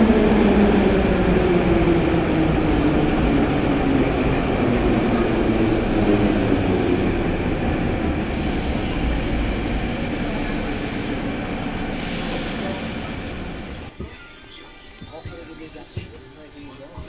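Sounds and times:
low train hum: 0.0s - 14.0s
train wheel and running noise: 0.0s - 14.1s.

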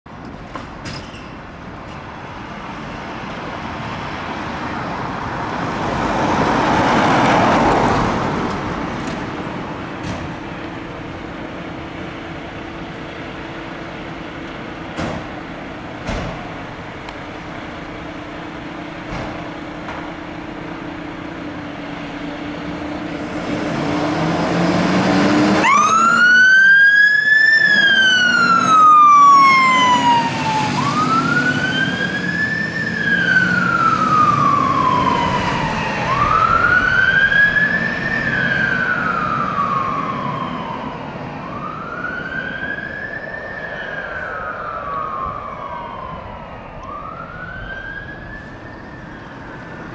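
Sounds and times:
diesel engine running: 7.6s - 26.0s
siren wailing: 25.4s - 49.9s.

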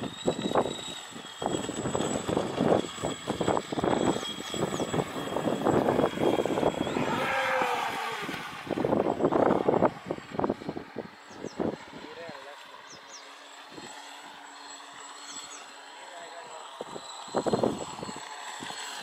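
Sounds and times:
water rushing from hull and spray: 0.0s - 11.2s
high motor whine: 0.0s - 19.0s.

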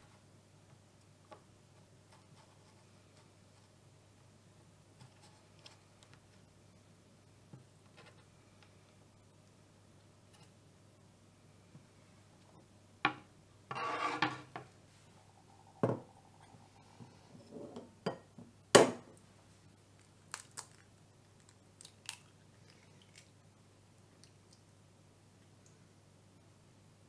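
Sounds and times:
knife on cutting board: 13.7s - 14.5s
rustling scrape: 13.7s - 15.1s.

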